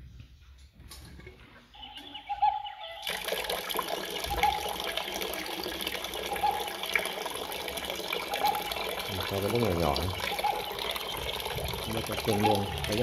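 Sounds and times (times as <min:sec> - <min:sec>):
water running from outlet: 0:03.0 - 0:13.0.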